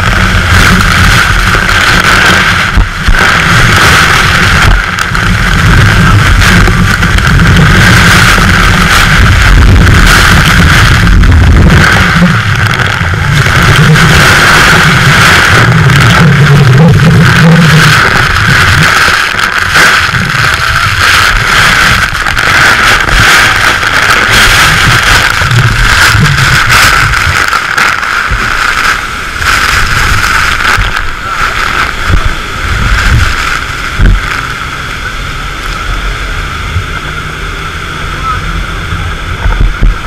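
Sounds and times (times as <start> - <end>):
low rumble: 0.0 - 40.0
waterfall roaring: 0.0 - 40.0.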